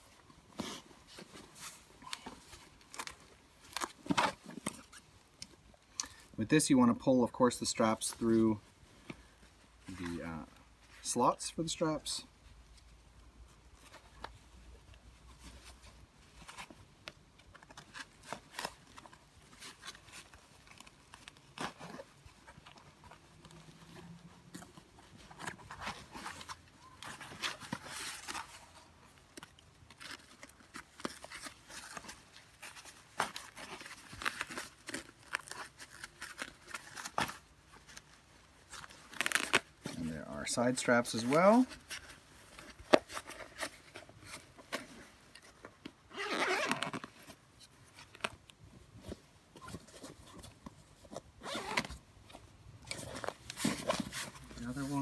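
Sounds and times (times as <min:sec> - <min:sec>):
fabric and straps rustling: 0:00.0 - 0:55.0.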